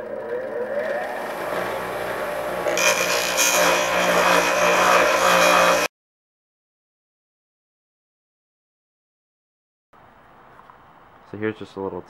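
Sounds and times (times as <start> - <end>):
bench grinder motor whine: 0.0 - 5.9
pipe grinding on wheel: 0.0 - 5.9.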